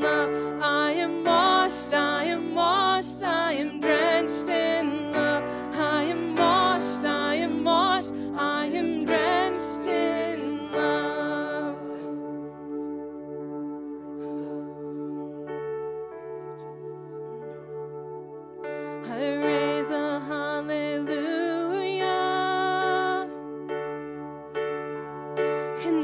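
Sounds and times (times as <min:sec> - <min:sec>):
person singing with vibrato: 0:00.0 - 0:12.9, 0:18.6 - 0:23.5, 0:25.5 - 0:26.0
held chords: 0:00.0 - 0:22.7.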